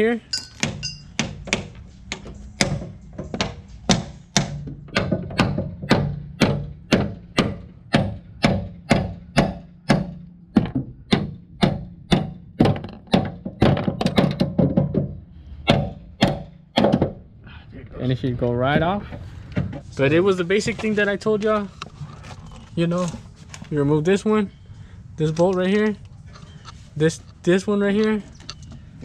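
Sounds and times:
hammer striking metal: 0:00.3 - 0:13.4.

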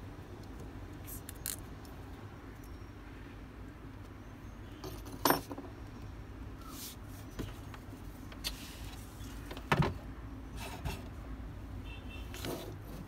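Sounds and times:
small tools clattering: 0:04.8 - 0:05.7.

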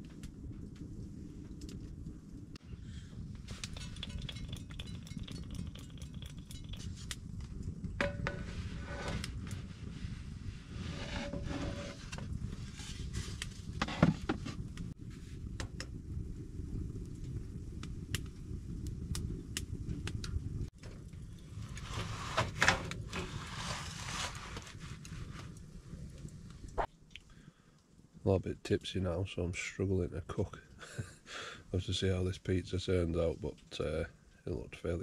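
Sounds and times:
sharp fire snaps: 0:00.0 - 0:10.9, 0:12.0 - 0:13.8, 0:14.5 - 0:32.4
low rumble: 0:00.0 - 0:24.1
wood fire crackling: 0:00.0 - 0:35.0.

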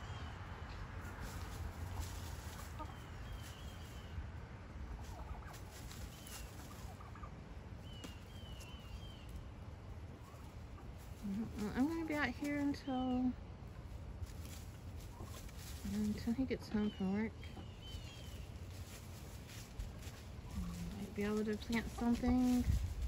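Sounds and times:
chickens clucking softly: 0:00.1 - 0:12.9, 0:13.6 - 0:23.0
low rumble: 0:13.3 - 0:23.0.

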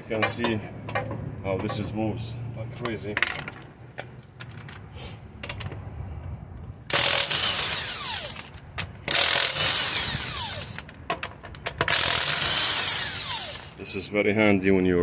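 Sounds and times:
impact wrench hammering lug nuts: 0:06.9 - 0:13.8.

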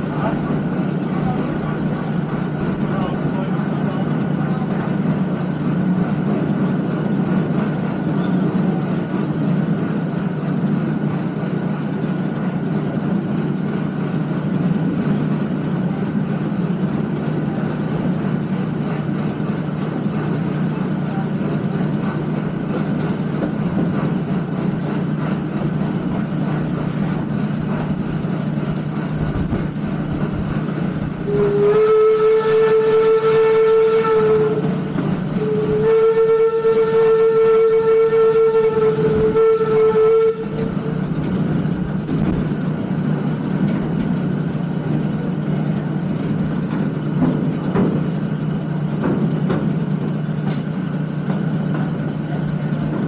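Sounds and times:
steam train rumbling: 0:00.0 - 0:53.0
steam whistle blowing: 0:31.2 - 0:41.2.

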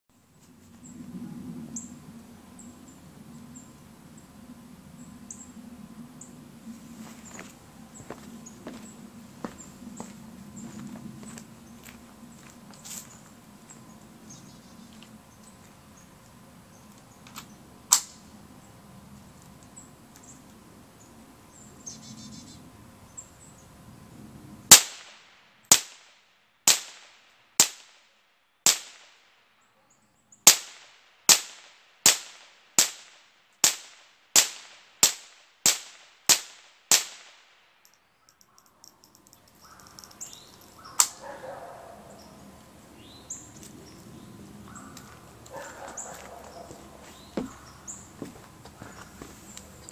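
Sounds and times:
footsteps on leaves: 0:06.9 - 0:13.4, 0:44.8 - 0:49.9
rifle shots: 0:24.7 - 0:26.1.

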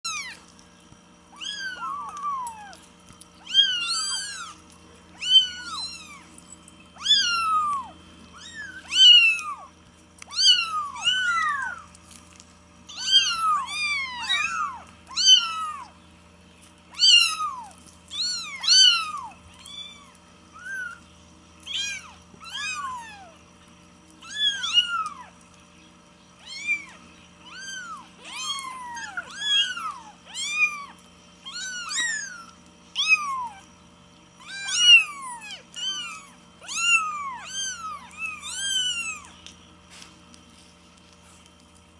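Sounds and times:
kittens mewing: 0:03.4 - 0:06.3, 0:06.9 - 0:11.9, 0:12.9 - 0:16.0, 0:26.4 - 0:33.7, 0:34.4 - 0:39.4.

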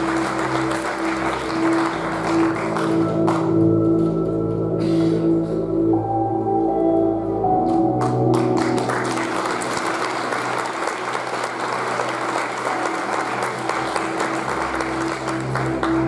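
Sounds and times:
audience applauding: 0:00.0 - 0:03.6, 0:08.0 - 0:16.0
stage music: 0:00.0 - 0:16.0.

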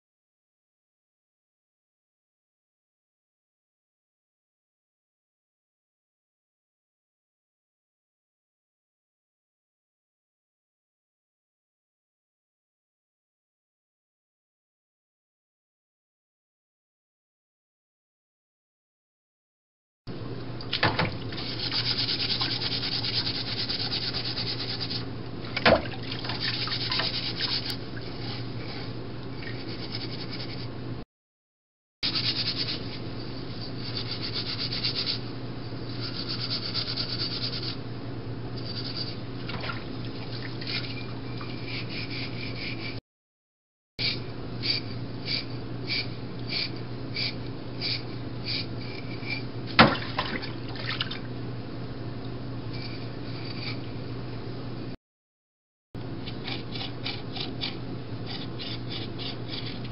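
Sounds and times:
scrubbing in a sink: 0:20.8 - 0:28.8, 0:38.6 - 0:43.0, 0:49.0 - 0:51.3
water sloshing and splashing: 0:25.4 - 0:27.2, 0:39.4 - 0:41.5, 0:49.7 - 0:51.3
knocks against metal sink: 0:49.8 - 0:50.1.

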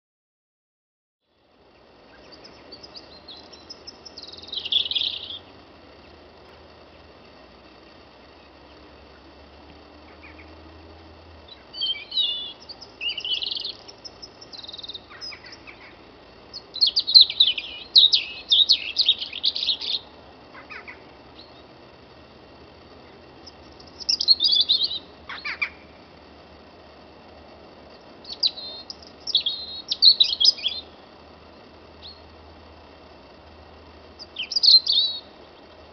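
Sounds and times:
songbird warbling: 0:01.6 - 0:09.4, 0:10.0 - 0:10.7, 0:11.4 - 0:21.8, 0:23.0 - 0:26.0, 0:27.9 - 0:31.2, 0:31.9 - 0:32.3, 0:34.1 - 0:35.9.

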